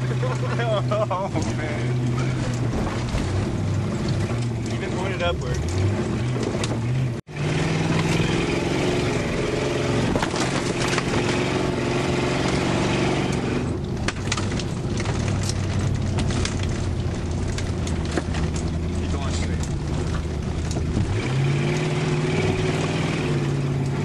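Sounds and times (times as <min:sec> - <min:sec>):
car engine running under load: 0:00.0 - 0:24.0
car body knocks and rattles: 0:02.2 - 0:04.9, 0:13.8 - 0:21.4.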